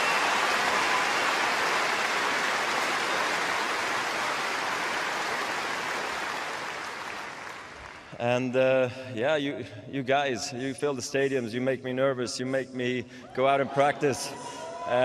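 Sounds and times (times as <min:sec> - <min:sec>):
stadium crowd applauding: 0:00.0 - 0:08.4.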